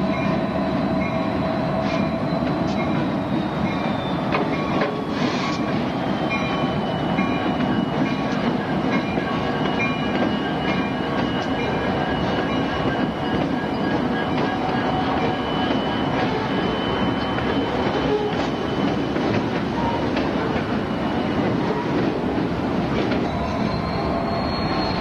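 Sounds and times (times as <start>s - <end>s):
wheels rattling on rail: 0.0s - 25.0s
thin high squeal: 23.2s - 25.0s.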